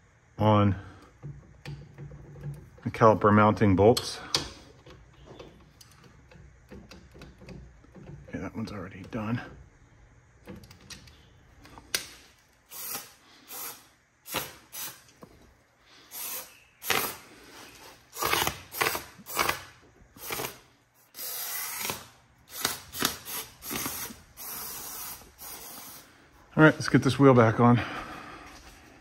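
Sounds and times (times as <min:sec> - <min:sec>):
aerosol spray can spraying: 0:22.6 - 0:26.1.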